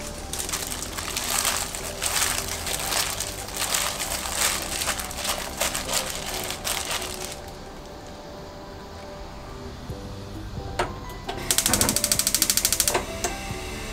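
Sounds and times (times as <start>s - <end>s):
gloved hands kneading wet stems: 0.0s - 8.0s.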